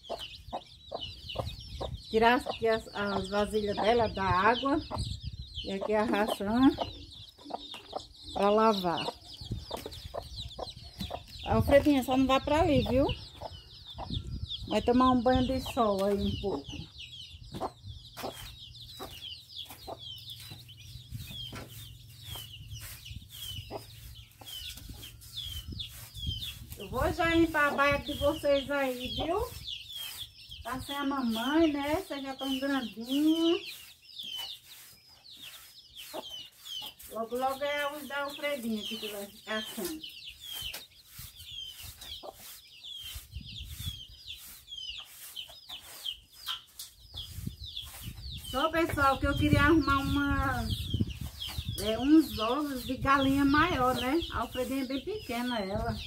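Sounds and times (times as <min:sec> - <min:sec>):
young chickens peeping: 0:00.0 - 0:56.0
broom sweeping floor: 0:18.2 - 0:56.0.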